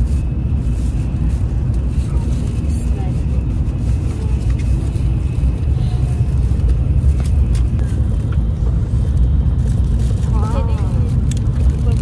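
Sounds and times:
train rumbling at speed: 0.0 - 12.0.

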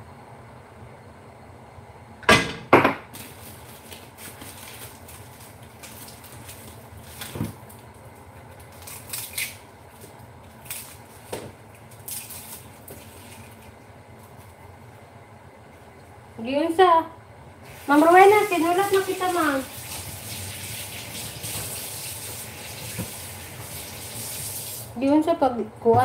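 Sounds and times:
kitchenware knocks and clinks: 2.2 - 3.1.

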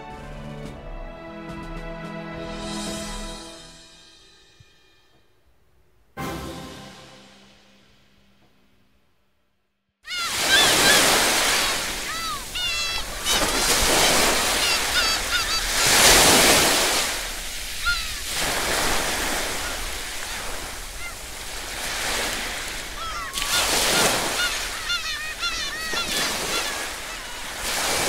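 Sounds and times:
birds calling: 10.1 - 28.0
surf washing over rocks: 10.1 - 28.0.

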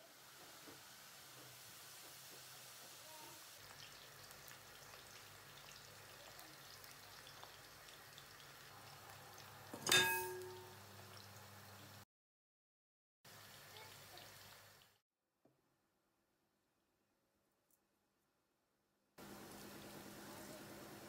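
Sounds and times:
stock simmering: 0.0 - 12.0, 19.2 - 21.0
cookware clank: 9.7 - 10.8.

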